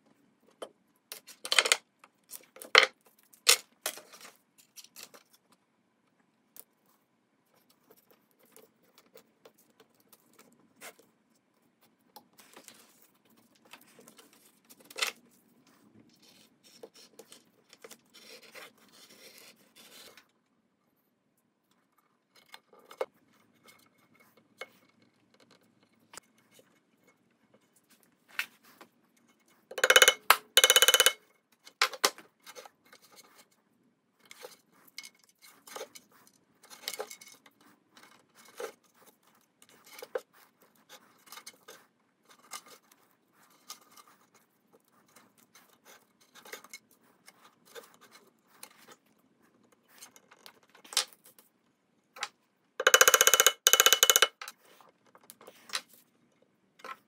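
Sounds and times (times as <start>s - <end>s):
small clicks and knocks of tools: 29.7s - 33.2s, 52.2s - 57.0s.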